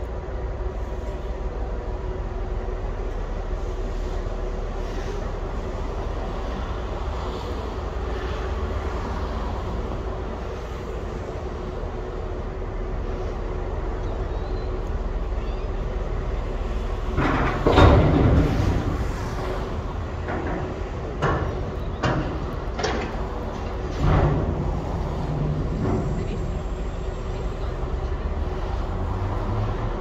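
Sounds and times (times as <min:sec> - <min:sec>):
metal knocks and clanks: 0:17.1 - 0:26.8.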